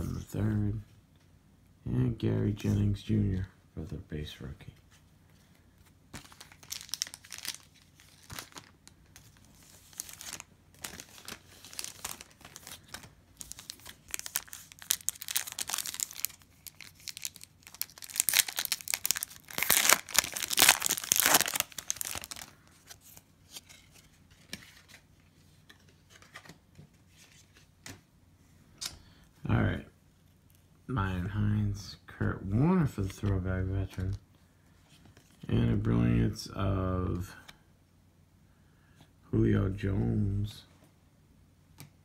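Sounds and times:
foil wrapper crinkling and tearing: 6.2 - 22.6.

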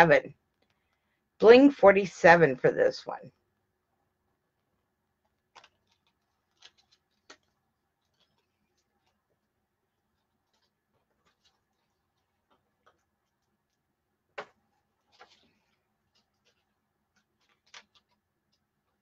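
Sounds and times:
faint clicks and taps: 0.5 - 1.0, 4.6 - 9.5, 10.1 - 19.0.

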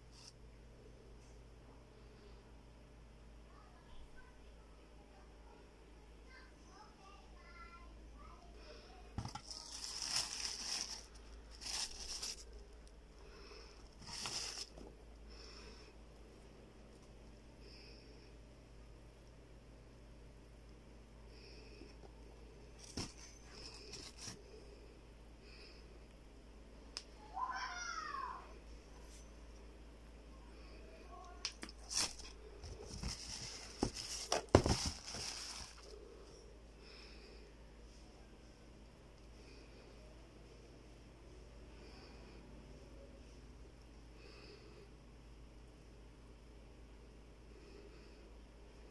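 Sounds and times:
tissue paper rustling: 9.2 - 12.5, 14.0 - 14.8, 22.8 - 24.4, 31.7 - 36.0.

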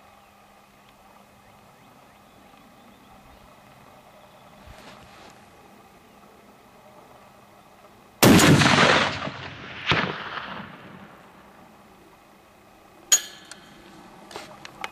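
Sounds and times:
rifle shot echoing: 8.2 - 11.4
sharp crack: 8.2 - 11.4
metallic clink: 13.1 - 13.8.

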